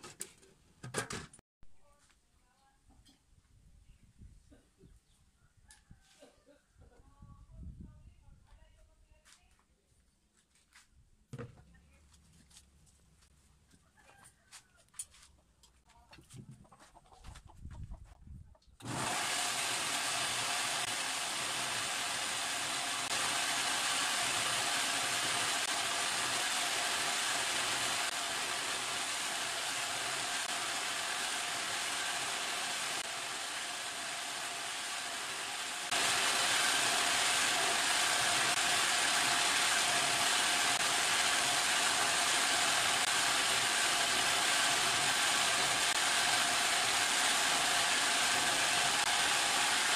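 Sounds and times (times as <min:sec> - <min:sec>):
grinder motor whining: 0:18.8 - 0:49.9.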